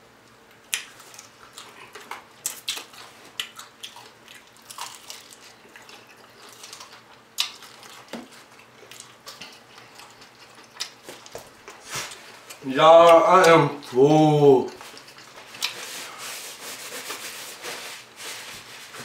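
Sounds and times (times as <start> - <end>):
chewing crunchy fried chicken: 0.3 - 14.0, 14.7 - 16.2.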